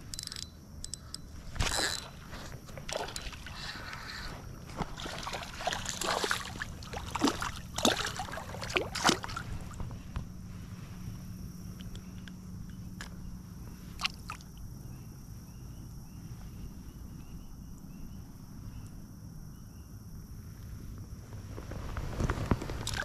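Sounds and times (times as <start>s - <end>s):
fish splashing in water: 2.8s - 9.8s.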